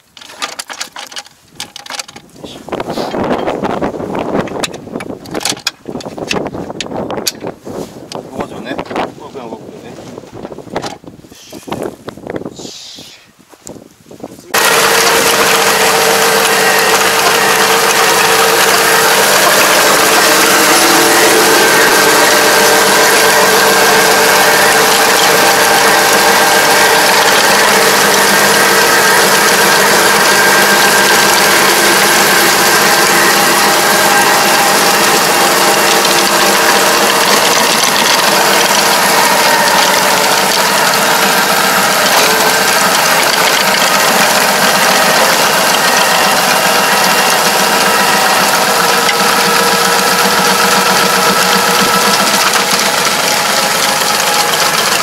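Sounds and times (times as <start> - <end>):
rotor working soil: 0.0 - 55.0
steady whining tones: 14.5 - 55.0
tractor engine running under load: 14.5 - 55.0.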